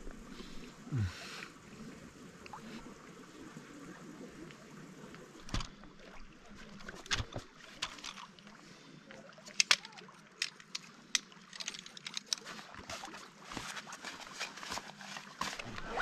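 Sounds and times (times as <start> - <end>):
fabric and backpack rustling: 12.0 - 16.0.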